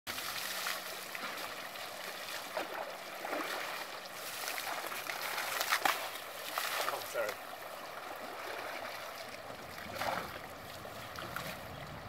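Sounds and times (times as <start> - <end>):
water splashes from bucket: 0.1 - 7.2, 9.8 - 11.6
shallow river water rushing: 0.1 - 12.0.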